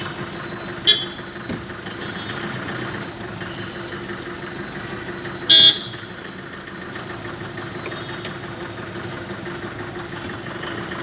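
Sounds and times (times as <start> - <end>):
car engines idling: 0.0 - 11.0
car horn toot: 0.8 - 2.6, 5.4 - 6.1.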